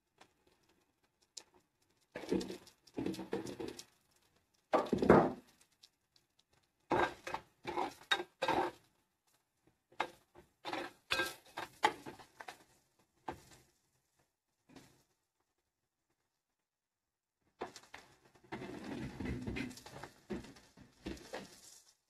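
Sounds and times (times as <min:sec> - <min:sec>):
spoon scraping a cooking pan: 0:06.9 - 0:08.8, 0:10.0 - 0:12.5.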